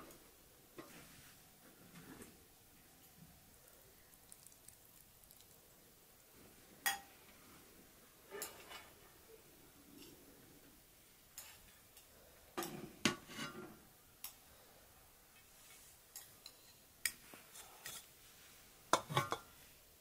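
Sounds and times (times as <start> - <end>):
cutlery clinking against dishes: 19.0 - 19.5.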